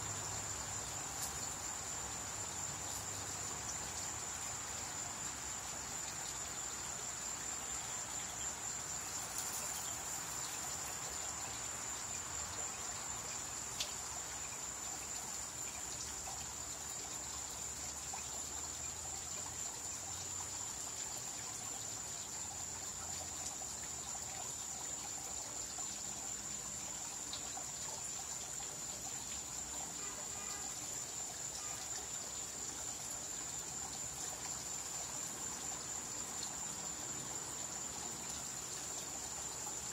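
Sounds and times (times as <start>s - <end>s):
crickets chirping: 0.0s - 39.9s
water trickling: 0.0s - 39.9s.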